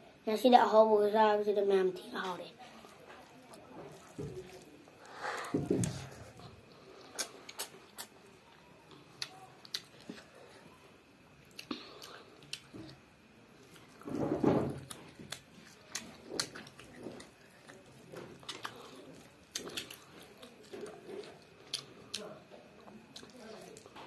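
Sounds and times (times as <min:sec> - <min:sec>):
child chewing: 0:02.2 - 0:24.0
wet lip smacks: 0:07.1 - 0:08.2.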